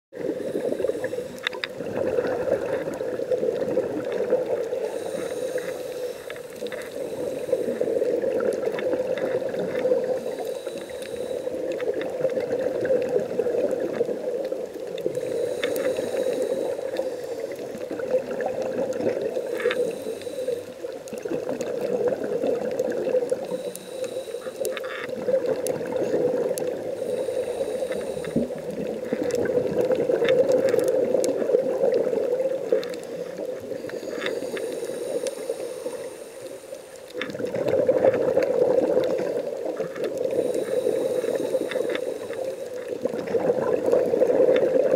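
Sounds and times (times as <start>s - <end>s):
diver breathing through regulator: 0.2s - 1.7s, 4.1s - 13.0s, 15.0s - 18.4s, 19.2s - 21.0s, 22.9s - 31.0s, 32.8s - 37.4s, 38.4s - 43.2s
bubbling: 0.2s - 44.9s
steady underwater drone: 0.2s - 44.9s.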